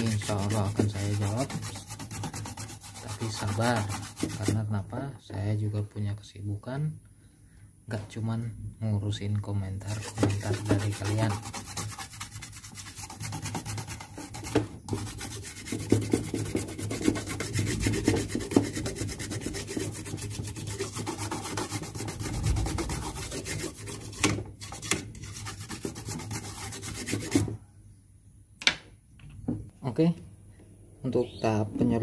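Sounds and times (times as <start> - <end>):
plastic brush scrubbing circuit board: 0.0 - 4.6, 9.8 - 27.6.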